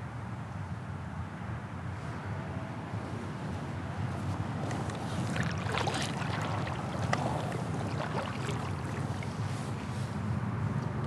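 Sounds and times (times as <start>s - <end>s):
paddle splashing water: 4.6s - 10.2s.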